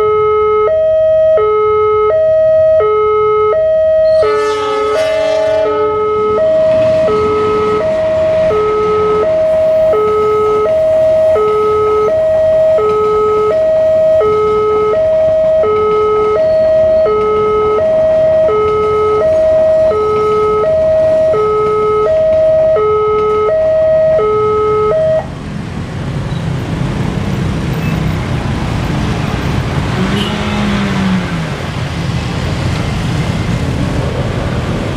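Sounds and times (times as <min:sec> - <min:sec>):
two-tone crossing alarm: 0:00.0 - 0:25.4
road traffic: 0:00.0 - 0:34.9
train rumbling past: 0:04.1 - 0:09.9.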